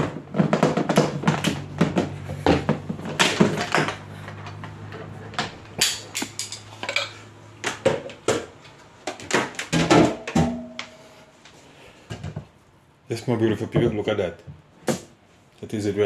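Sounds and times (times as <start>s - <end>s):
kitchenware clattering: 5.8s - 11.0s
low steady hum: 9.5s - 14.5s.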